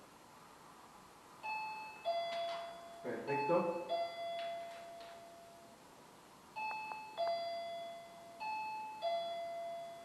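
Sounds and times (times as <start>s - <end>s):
two-tone electronic chime: 1.4s - 5.7s, 6.6s - 10.0s.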